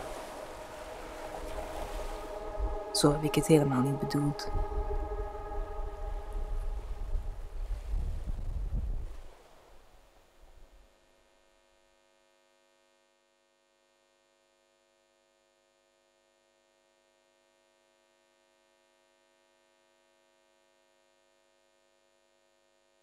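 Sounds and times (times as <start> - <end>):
low noise: 0.0 - 10.8
faint steady hum: 0.0 - 23.0.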